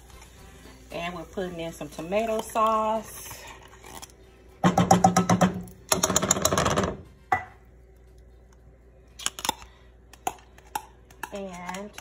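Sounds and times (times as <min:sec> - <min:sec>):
tin can clattering on skillet: 0:04.6 - 0:07.5.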